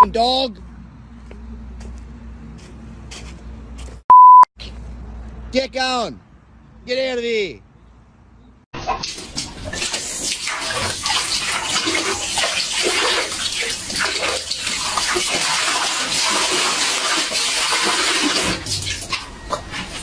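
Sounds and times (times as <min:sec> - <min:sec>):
dog lapping water: 0:08.8 - 0:20.0
water splashing from a tap: 0:08.8 - 0:20.0.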